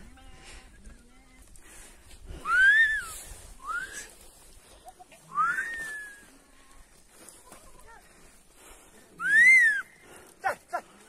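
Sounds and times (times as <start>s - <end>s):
person whistling: 2.5s - 4.1s, 5.4s - 6.2s.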